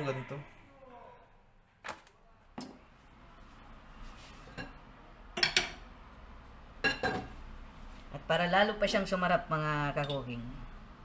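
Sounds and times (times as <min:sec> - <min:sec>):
kitchenware clinking and knocking: 0:05.4 - 0:05.8, 0:06.8 - 0:07.4.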